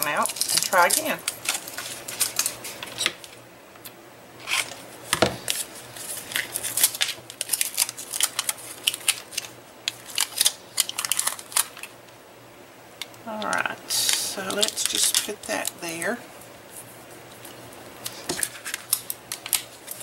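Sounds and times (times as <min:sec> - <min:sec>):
foil tape crinkling: 0:00.0 - 0:03.4, 0:04.4 - 0:12.0, 0:13.4 - 0:20.0
tape backing peeling: 0:00.0 - 0:03.4, 0:04.4 - 0:11.9
scissors snipping foil tape: 0:18.3 - 0:20.0.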